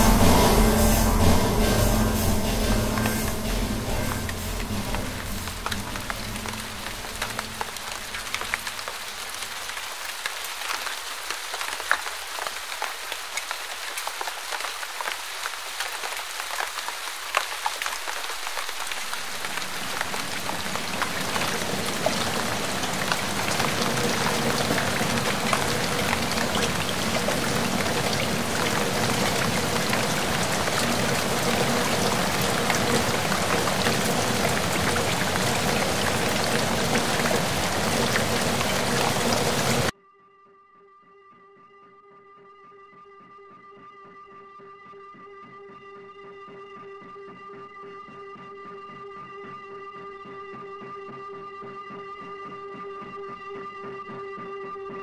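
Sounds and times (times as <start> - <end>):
steady rain: 0.0 - 39.9.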